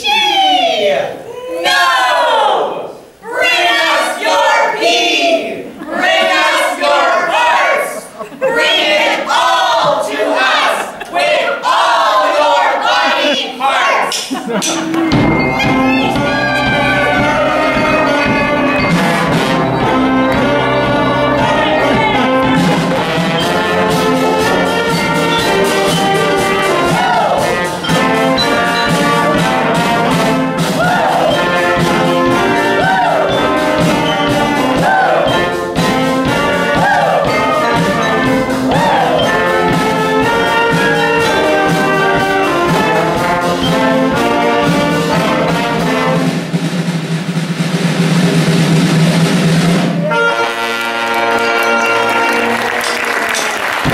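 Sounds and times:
live brass music: 14.8s - 53.9s.

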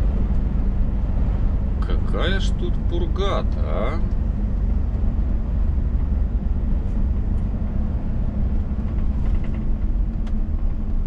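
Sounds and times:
road noise: 0.0s - 11.0s
truck engine drone: 0.0s - 11.0s.

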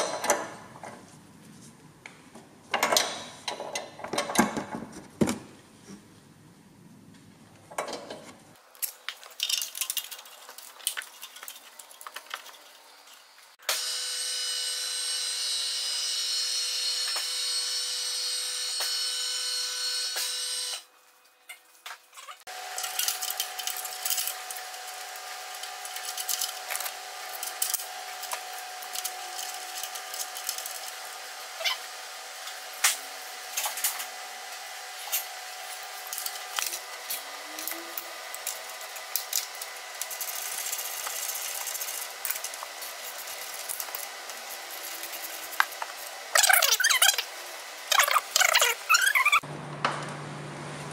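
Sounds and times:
car lift electric motor running: 13.7s - 20.8s.

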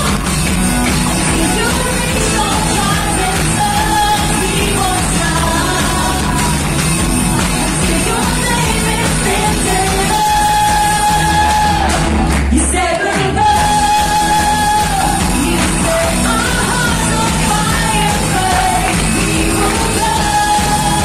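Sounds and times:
person singing long notes: 12.6s - 21.0s.

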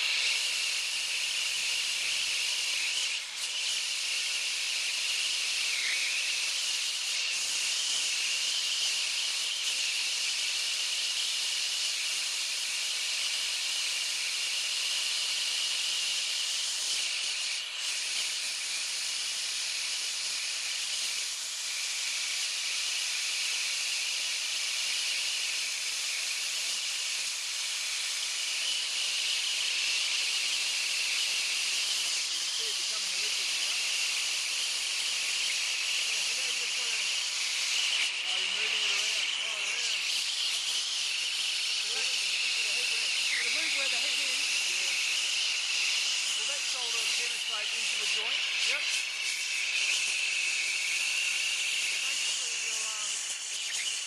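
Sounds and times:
torch flame hissing: 0.0s - 54.0s
steady high whistle: 27.9s - 54.0s.

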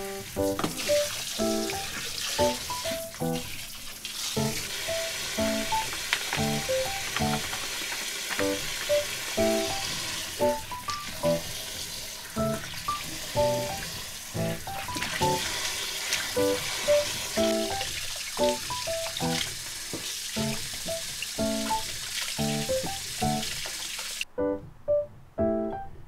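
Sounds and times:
background music of short notes: 0.0s - 3.4s, 8.4s - 11.5s, 12.4s - 15.5s, 16.4s - 17.8s, 18.4s - 19.5s, 24.3s - 26.0s
tap water spraying into sink: 0.0s - 24.2s.

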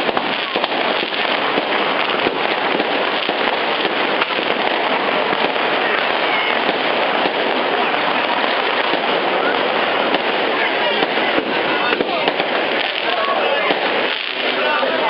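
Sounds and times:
fireworks crackling and popping: 0.0s - 15.0s.

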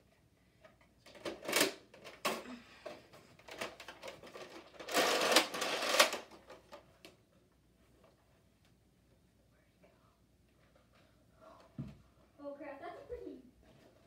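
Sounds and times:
toy blaster mechanical clattering: 1.2s - 2.4s, 3.5s - 6.4s.

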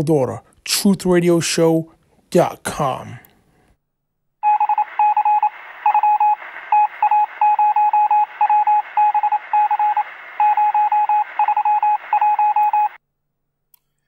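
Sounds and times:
morse code beeping: 4.4s - 13.0s
radio static hiss: 4.5s - 13.0s.

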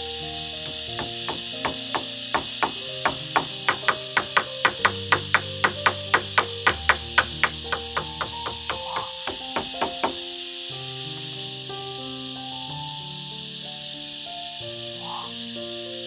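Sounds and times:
background music: 0.0s - 16.0s
hammer driving nails: 0.6s - 10.2s.

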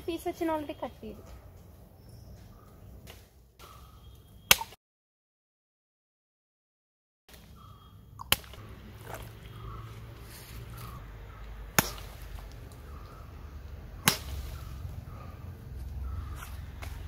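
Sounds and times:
machete chopping carcass: 11.7s - 12.6s, 14.0s - 14.8s.

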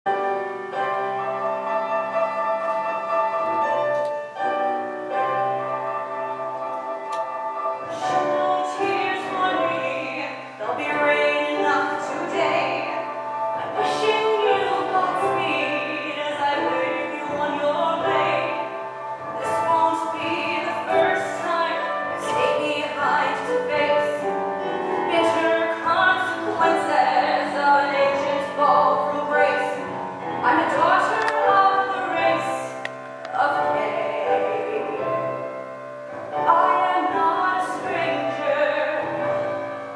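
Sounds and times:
instrumental accompaniment: 0.1s - 39.9s
orchestral and keyboard chords: 0.1s - 39.9s
woman singing a ballad: 7.9s - 35.6s, 36.4s - 39.6s.

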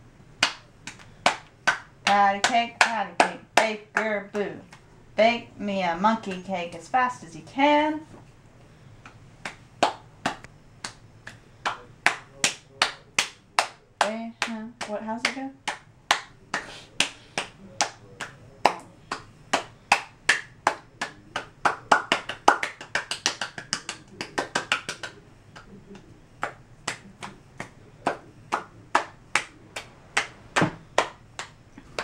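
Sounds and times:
light hand slaps: 9.0s - 32.0s.

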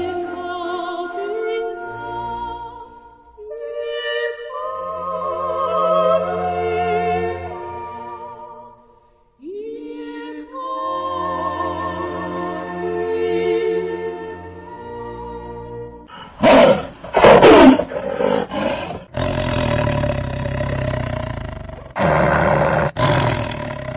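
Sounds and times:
choral singing: 3.4s - 7.6s
tiger growling: 16.1s - 23.9s
tiger roaring: 16.1s - 23.9s.

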